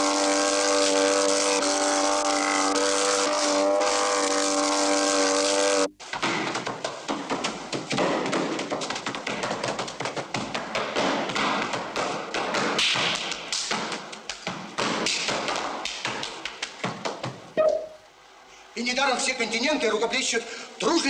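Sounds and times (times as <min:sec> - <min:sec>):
shoes tapping and stamping: 0:06.0 - 0:18.0.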